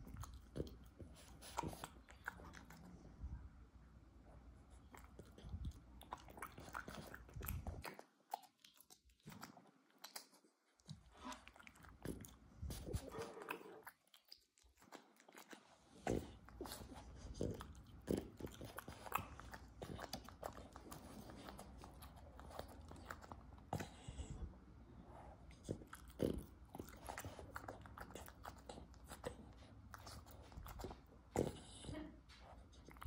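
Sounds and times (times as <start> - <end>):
dog chewing crunchy food: 4.9 - 24.1, 25.5 - 31.7.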